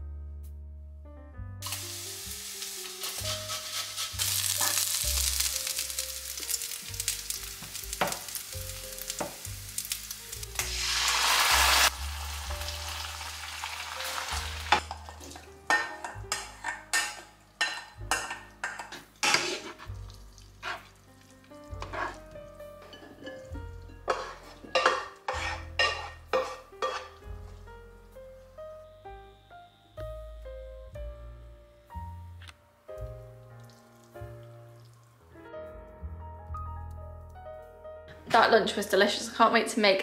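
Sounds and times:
food sizzling in a frying pan: 1.6 - 27.7
wooden spoon scraping a pan: 2.6 - 5.8, 14.7 - 21.0, 21.8 - 27.7.

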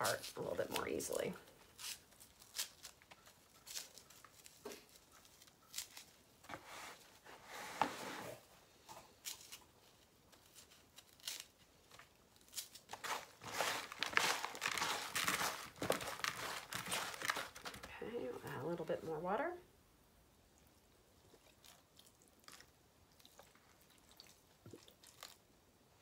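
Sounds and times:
hands crumbling coir: 0.0 - 6.7, 9.2 - 17.9.

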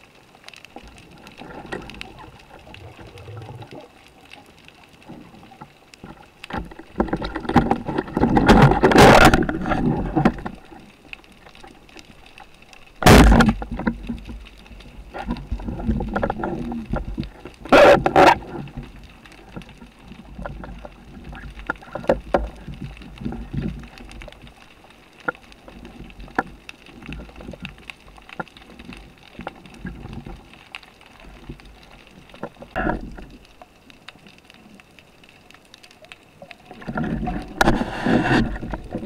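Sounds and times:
muffled underwater water movement: 0.0 - 39.0
small underwater clicks: 0.0 - 39.0.

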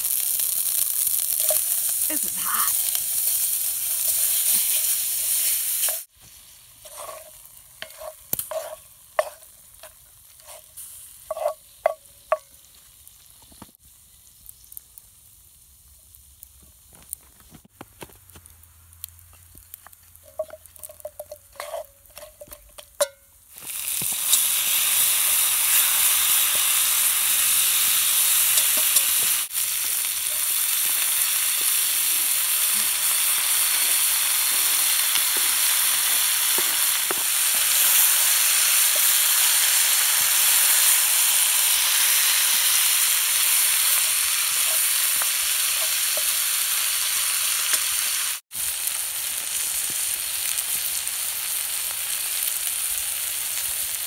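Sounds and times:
meat sizzling in a pot: 0.0 - 17.1, 18.6 - 54.0
pops and crackles: 13.0 - 15.1, 16.1 - 21.2, 23.5 - 24.5.

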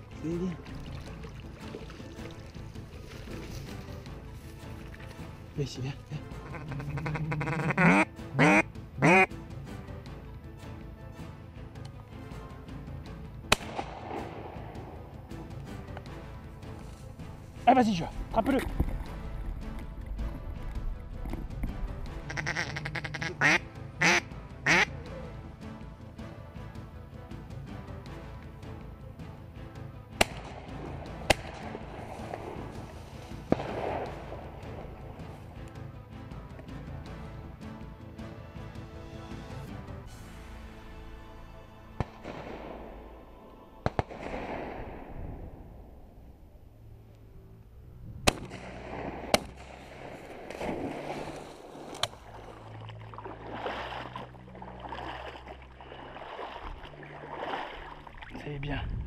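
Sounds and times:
background music: 0.0 - 59.0
dog swimming through reeds: 0.5 - 7.0, 49.9 - 58.5
dog splashing in water: 0.6 - 4.0, 50.5 - 58.4
sharp crack: 13.4 - 14.9, 30.1 - 35.2, 42.0 - 43.2, 43.8 - 45.7, 48.2 - 52.3
shotgun shots: 13.5 - 14.7, 30.2 - 32.5, 33.5 - 34.5, 43.8 - 45.2, 48.3 - 51.1.

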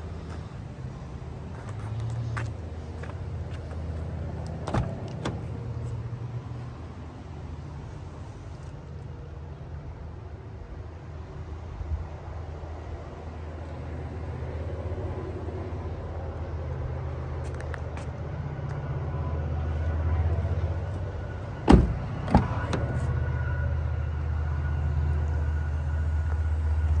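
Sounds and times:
car door clunks: 4.6 - 5.5, 21.6 - 23.0.

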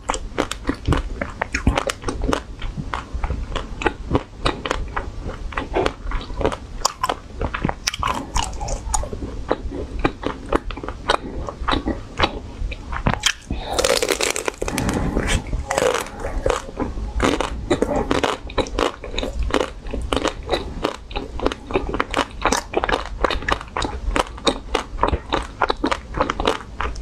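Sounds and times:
crunching into ice cream bar: 13.2 - 27.0.

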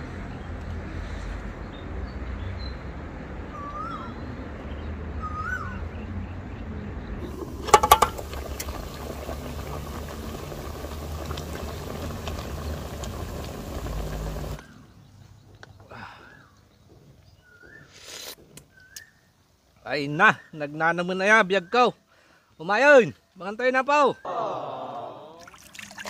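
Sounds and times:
metal pot lid clanking: 7.2 - 9.3
pot simmering hiss: 7.2 - 14.7
outdoor rumble: 7.2 - 14.9.

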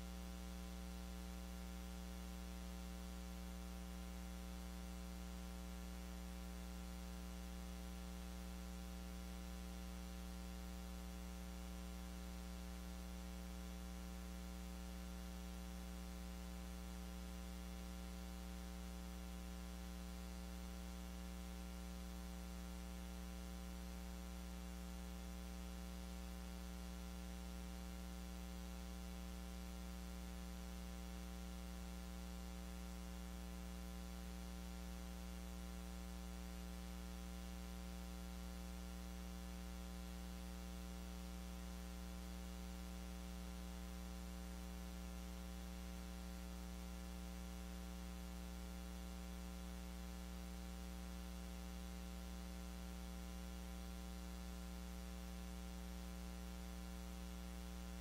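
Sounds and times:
electrical mains hum: 0.0 - 58.0.

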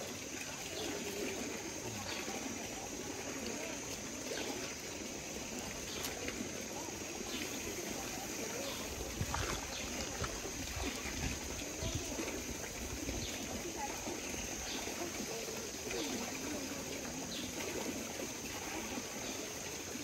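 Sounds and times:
faint voices: 0.0 - 20.0
water trickling over cascades: 0.0 - 20.0.

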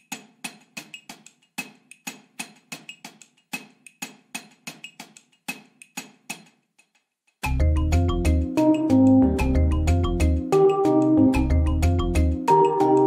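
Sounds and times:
sharp percussive ticks: 0.0 - 8.0.

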